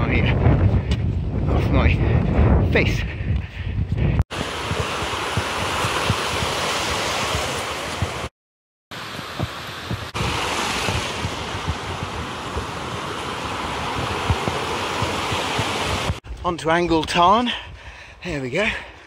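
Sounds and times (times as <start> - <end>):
wind buffeting microphone: 0.0 - 8.3, 9.0 - 17.0
stream rushing over rocks: 4.3 - 8.3, 9.0 - 16.2.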